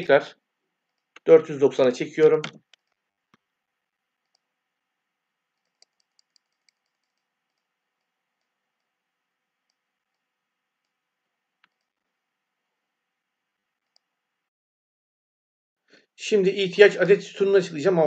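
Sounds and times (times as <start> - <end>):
keyboard and mouse clicks: 2.4 - 3.5, 5.6 - 9.0, 11.6 - 12.0.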